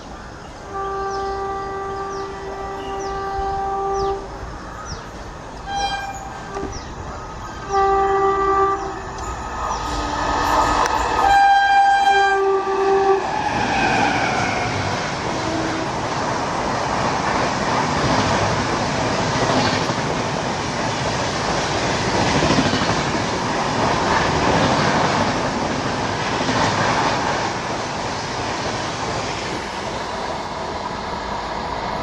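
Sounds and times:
train wheels clattering over rail joints: 16.0 - 30.0.

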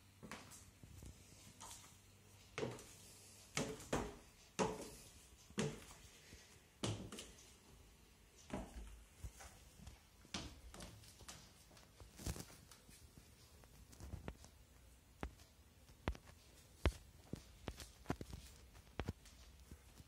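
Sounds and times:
high heels on wooden stairs: 3.6 - 6.0.

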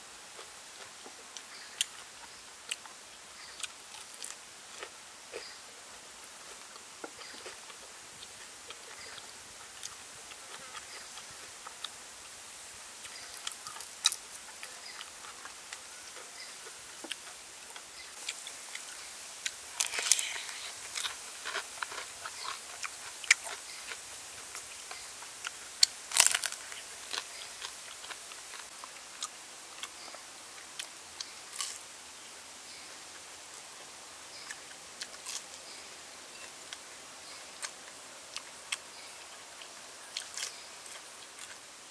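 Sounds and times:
crunchy bites and chewing: 17.0 - 29.9, 30.8 - 31.8, 34.5 - 35.5, 40.1 - 41.6.

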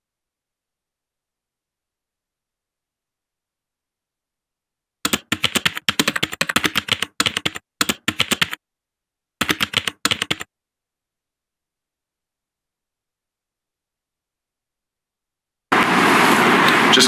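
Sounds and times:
rapid keyboard typing: 5.0 - 8.6, 9.4 - 10.5.

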